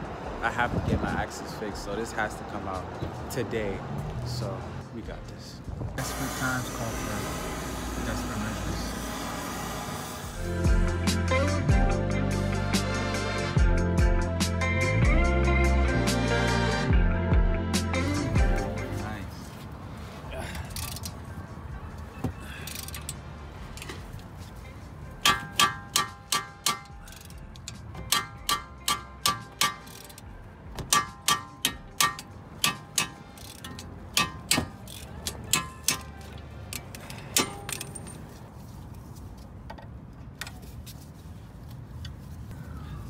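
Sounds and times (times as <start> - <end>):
hammer striking metal: 25.2 - 27.2, 28.0 - 30.2, 30.8 - 36.2, 37.3 - 38.0.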